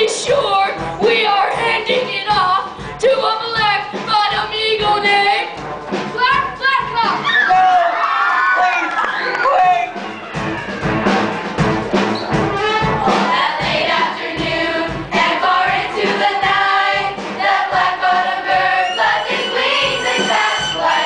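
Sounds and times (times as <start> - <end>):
musical accompaniment with steady beat: 0.0 - 7.7, 9.2 - 21.0
chorus singing: 9.9 - 21.0.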